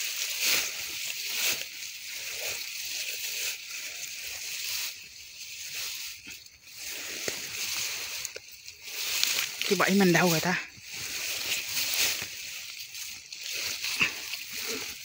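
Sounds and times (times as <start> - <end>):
tall grass rustling and swishing: 0.0 - 15.0.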